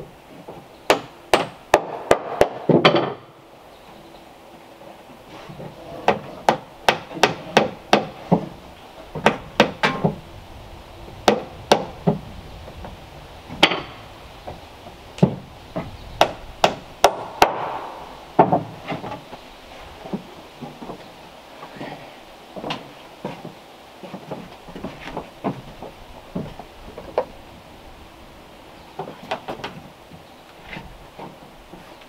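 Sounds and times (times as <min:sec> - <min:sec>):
hammer striking wood: 0:00.9 - 0:03.3, 0:06.1 - 0:08.5, 0:09.2 - 0:10.2, 0:11.2 - 0:12.2, 0:13.6 - 0:14.0, 0:15.2 - 0:19.1.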